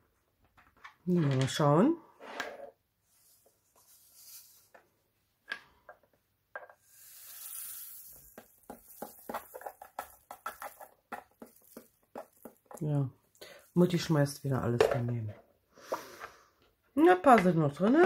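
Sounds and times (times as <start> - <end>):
soft rustling of tiny beads: 3.0 - 4.8, 6.8 - 13.8.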